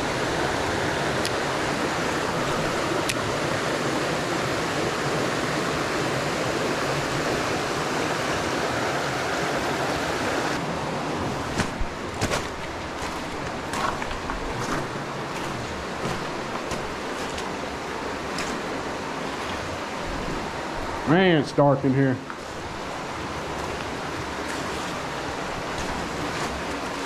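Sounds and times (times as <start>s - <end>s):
creek water rushing: 0.0s - 27.0s.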